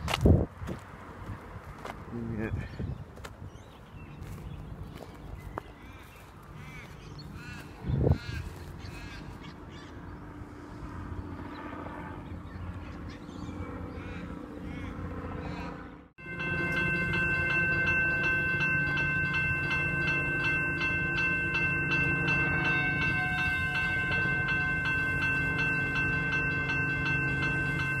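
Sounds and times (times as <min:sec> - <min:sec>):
birds calling: 0:02.7 - 0:10.4, 0:11.1 - 0:28.0
level crossing bells ringing: 0:16.2 - 0:28.0.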